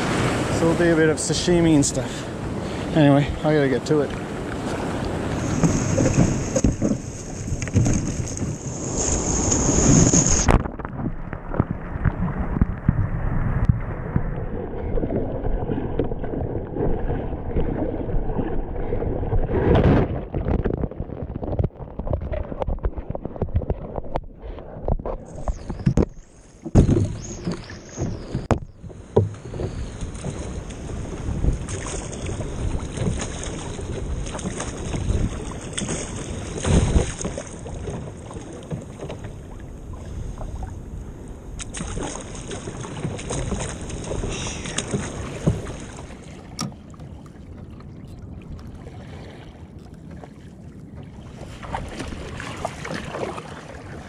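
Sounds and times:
knocks against kayak hull: 0:05.6 - 0:08.5, 0:25.8 - 0:30.3.

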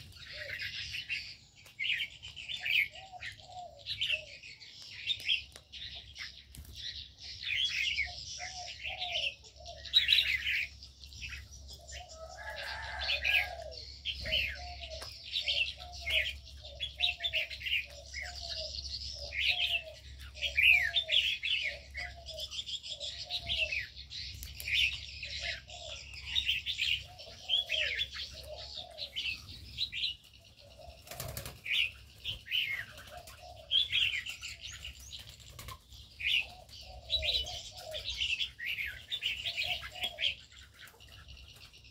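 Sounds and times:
dove cooing: 0:00.0 - 0:06.0, 0:07.4 - 0:41.9
birds chirping: 0:00.0 - 0:41.9
wings fluttering: 0:30.7 - 0:33.6, 0:34.3 - 0:36.0.

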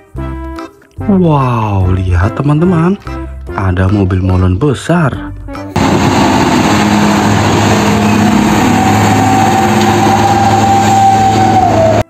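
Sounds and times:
road traffic noise: 0:05.7 - 0:12.0
truck diesel engine passing: 0:05.7 - 0:12.0
high steady whine: 0:05.8 - 0:12.0.

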